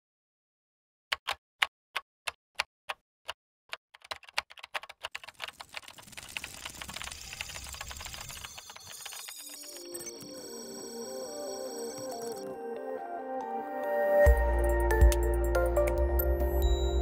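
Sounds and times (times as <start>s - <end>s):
keyboard typing: 1.1s - 3.0s, 3.7s - 12.5s.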